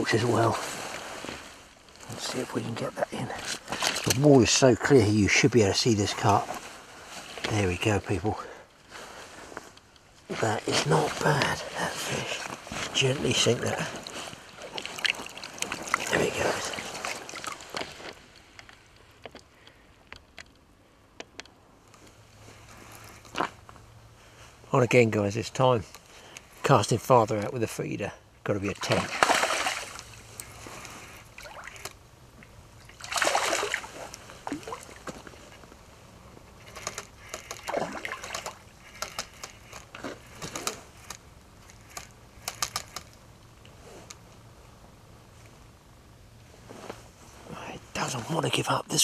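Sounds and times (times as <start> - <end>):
low steady hum: 0.0 - 49.0
small water splashes: 13.8 - 18.0, 28.8 - 30.5, 31.4 - 31.9, 32.8 - 35.1, 37.6 - 38.6.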